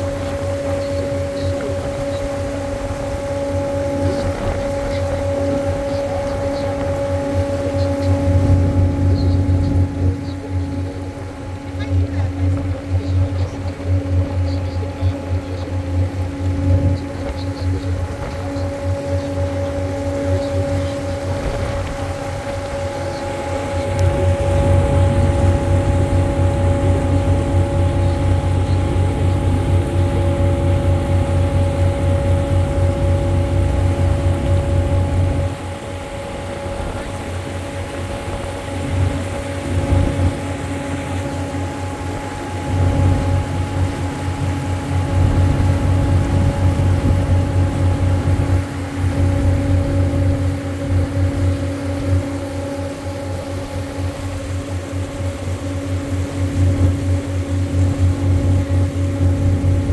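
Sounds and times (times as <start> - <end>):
boat engine rumbling: 0.0 - 59.9.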